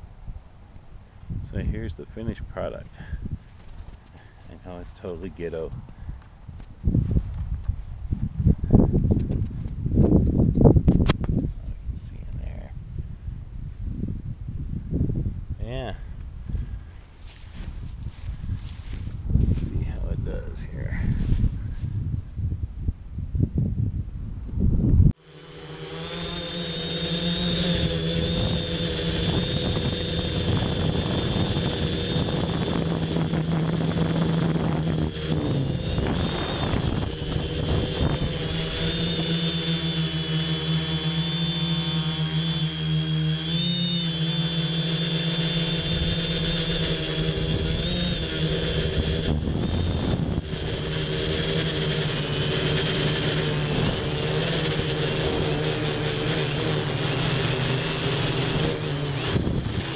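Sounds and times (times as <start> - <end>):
drone propellers buzzing: 25.2 - 59.9.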